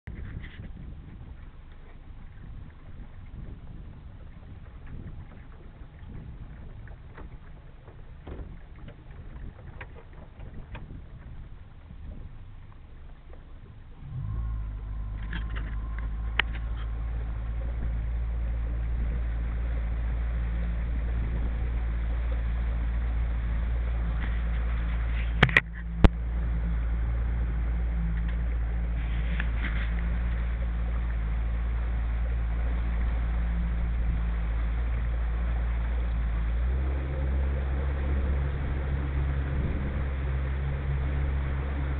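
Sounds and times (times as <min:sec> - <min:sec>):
boat motor humming: 0:00.0 - 0:41.9.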